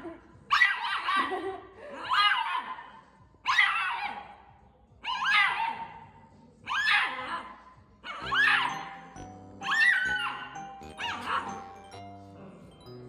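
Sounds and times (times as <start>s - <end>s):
puppy yipping barks: 0.5s - 1.4s, 2.1s - 4.4s, 5.0s - 6.0s, 6.7s - 7.3s, 8.0s - 9.0s, 9.6s - 11.7s.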